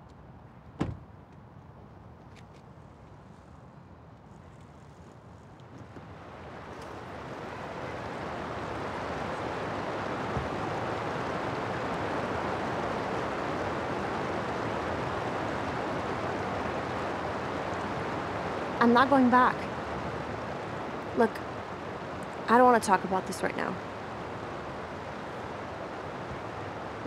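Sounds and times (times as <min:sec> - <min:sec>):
flowing river water: 0:06.0 - 0:27.0.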